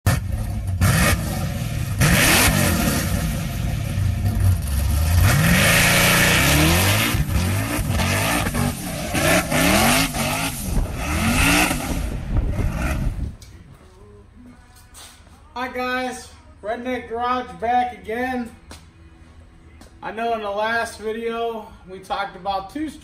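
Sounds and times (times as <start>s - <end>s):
car engine revving: 0.0s - 13.4s.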